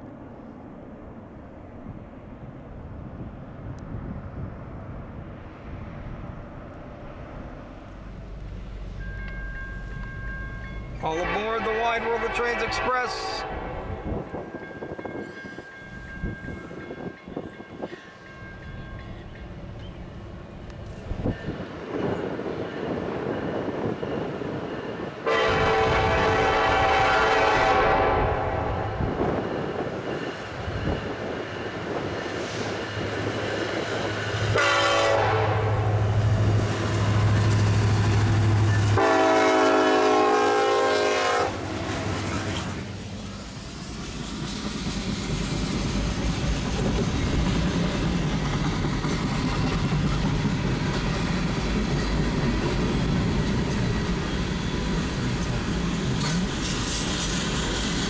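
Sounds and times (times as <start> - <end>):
locomotive engine hum: 0.0 - 58.0
locomotive horn blasts: 11.1 - 14.0, 25.2 - 29.0, 34.6 - 36.0, 39.0 - 42.6
wheels clacking on rail joints: 43.8 - 58.0.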